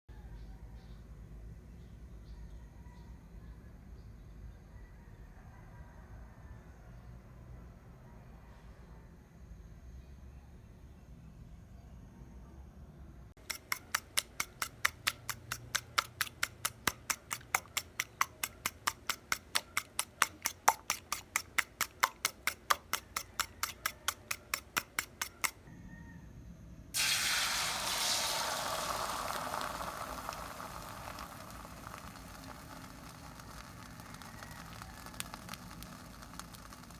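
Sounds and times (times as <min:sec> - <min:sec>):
whisk clicking against bowl: 0:13.4 - 0:25.6
egg sizzling in hot pan: 0:27.0 - 0:36.9.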